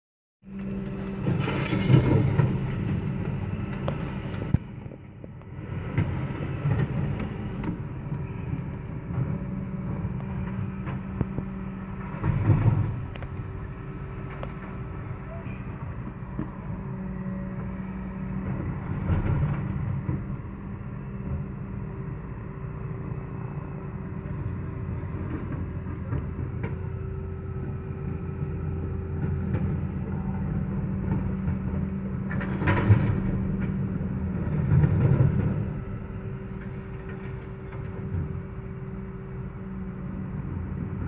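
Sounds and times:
garbage truck running: 0.5 - 41.0.

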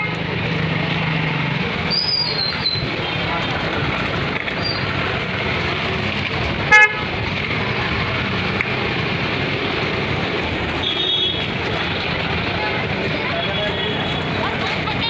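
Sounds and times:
busy market street din: 0.0 - 15.0
vehicle horn toot: 6.7 - 7.0, 10.8 - 11.4.

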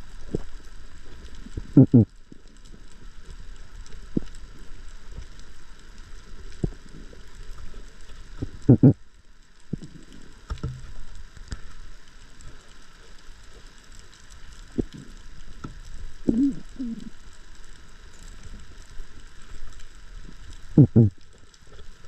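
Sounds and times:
sharp clicks and crackles: 0.0 - 22.0
underwater hiss: 14.6 - 22.0.

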